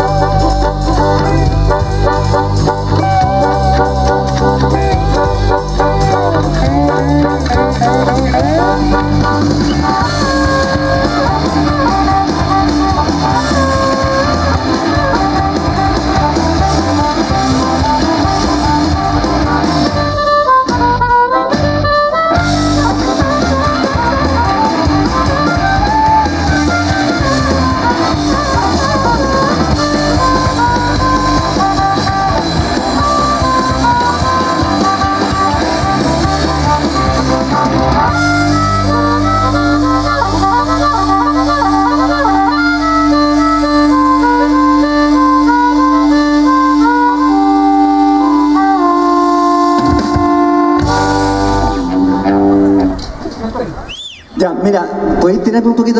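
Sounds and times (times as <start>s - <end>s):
harmonica playing lead: 0.0s - 53.0s
live blues rock band: 0.0s - 54.0s.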